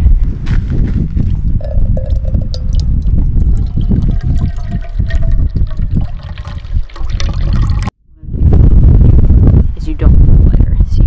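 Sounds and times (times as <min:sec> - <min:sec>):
low rumble: 0:00.0 - 0:11.0
water trickling into metal pot: 0:01.6 - 0:07.9.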